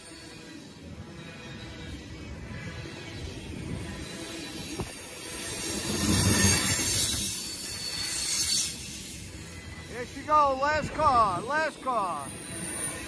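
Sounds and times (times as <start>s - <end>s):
freight train wheels rumbling: 0.0s - 13.0s.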